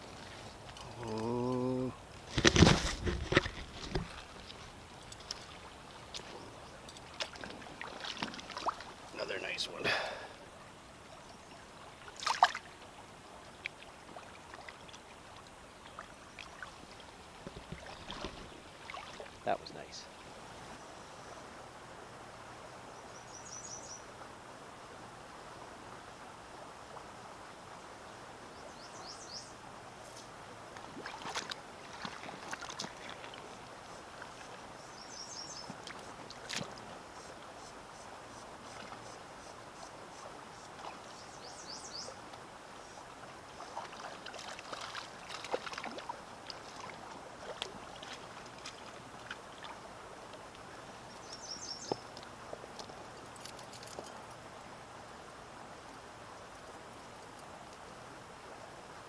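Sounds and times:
clicks and small splashes: 0:00.0 - 0:09.2, 0:12.0 - 0:12.8, 0:13.6 - 0:19.4, 0:30.1 - 0:33.6, 0:35.7 - 0:36.9, 0:43.6 - 0:50.7, 0:51.8 - 0:54.4
river water rushing: 0:03.0 - 0:59.0.

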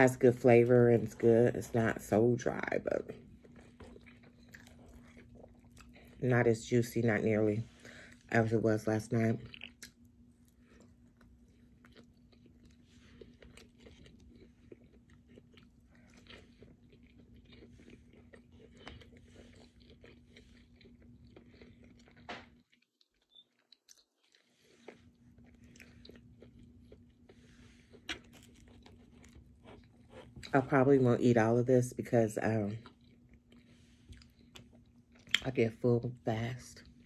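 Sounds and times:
steady low hum: 0:00.0 - 0:22.7
person chewing: 0:03.2 - 0:06.2, 0:09.4 - 0:30.5, 0:32.8 - 0:35.5.

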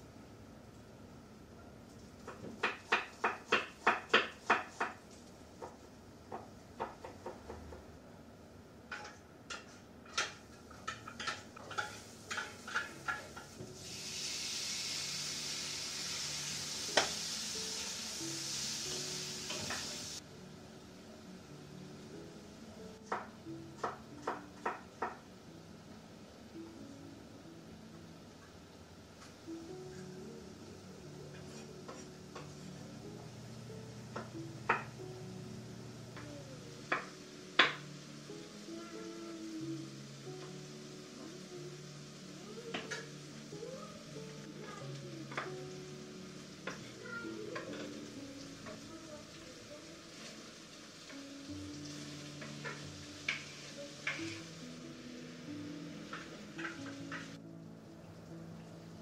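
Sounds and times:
soft background music: 0:00.0 - 0:59.0
meat sizzling in hot oil: 0:10.2 - 0:20.3, 0:34.6 - 0:59.0.

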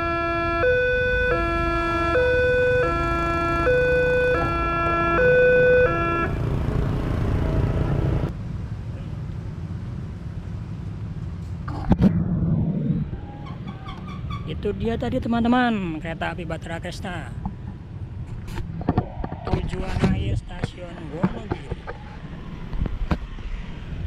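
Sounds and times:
road traffic rumble: 0:00.0 - 0:24.0
motorcycles moving off: 0:04.3 - 0:08.3.

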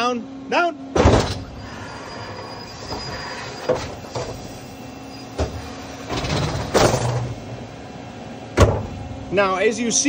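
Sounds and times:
hydraulic hiss: 0:01.2 - 0:07.3
faint high whine: 0:01.4 - 0:08.0.

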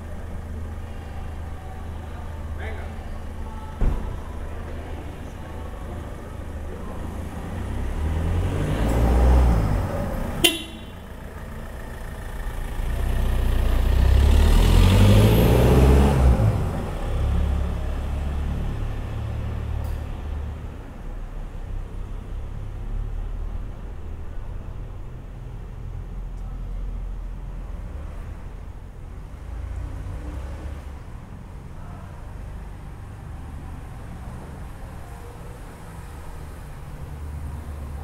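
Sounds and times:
car passing: 0:00.0 - 0:26.0
distant traffic hum: 0:00.0 - 0:38.0
heavy vehicle engine rumble: 0:00.0 - 0:38.0
car horn toot: 0:10.4 - 0:11.1.

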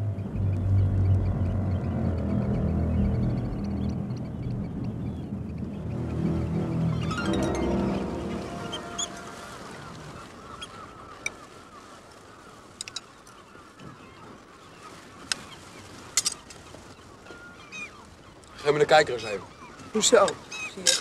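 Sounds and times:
music: 0:05.6 - 0:09.8
flock of birds calling: 0:06.3 - 0:21.0.

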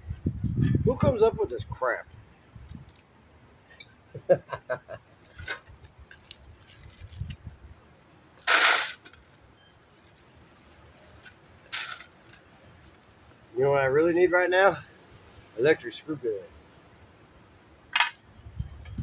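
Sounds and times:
short rush of noise: 0:08.4 - 0:09.2.

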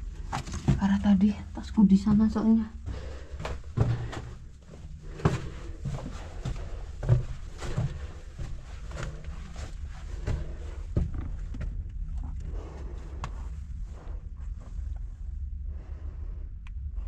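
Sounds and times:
low steady rumble: 0:00.0 - 0:17.0
footsteps and gear knocks: 0:02.0 - 0:13.4.

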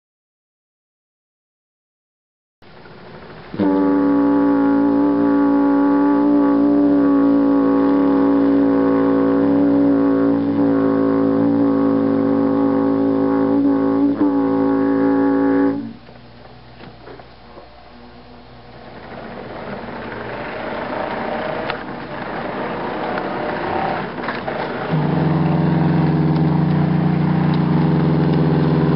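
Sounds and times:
model locomotive air horn blast: 0:03.5 - 0:16.0, 0:20.0 - 0:28.9.

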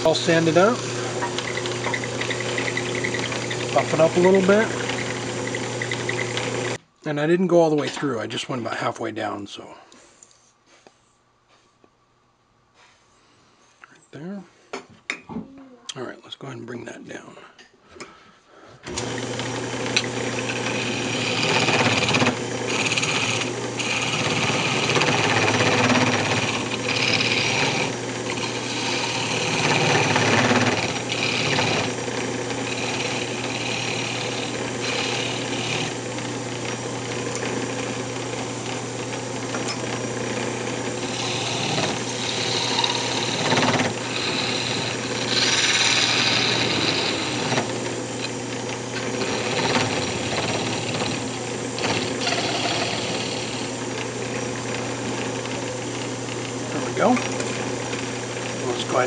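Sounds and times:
parting tool scraping wood: 0:00.0 - 0:06.8, 0:18.9 - 0:54.1
wood lathe motor hum: 0:00.0 - 0:06.8, 0:18.8 - 0:59.0.

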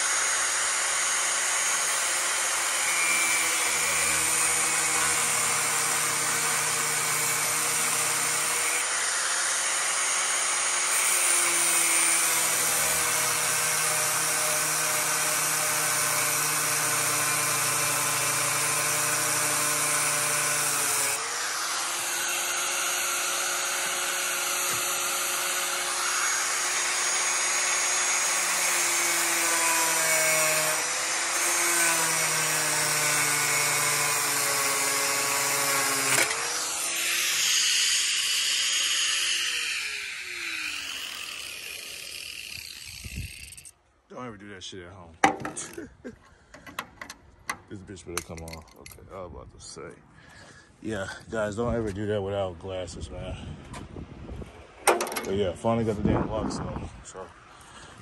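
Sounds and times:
angle grinder cutting steel: 0:00.0 - 0:43.8.

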